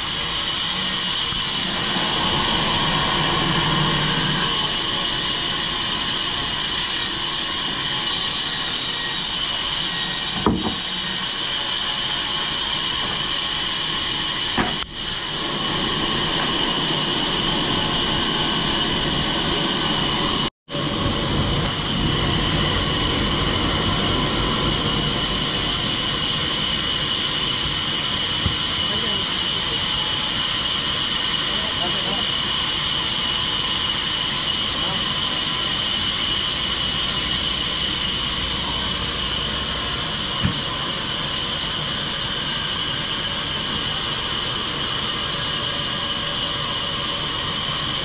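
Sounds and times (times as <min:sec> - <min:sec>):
band saw cutting timber: 0:00.0 - 0:20.3, 0:22.2 - 0:48.0
sharp knocks: 0:10.4 - 0:10.8.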